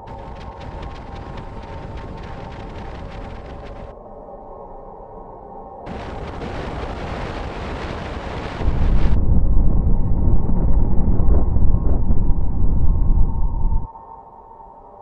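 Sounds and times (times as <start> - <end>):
wind buffeting microphone: 0.0 - 3.9, 5.9 - 13.9.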